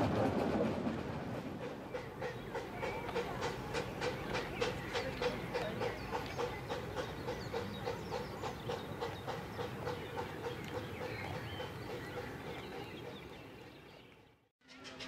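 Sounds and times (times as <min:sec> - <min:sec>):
distant steam locomotive chuffing: 0:00.0 - 0:13.9.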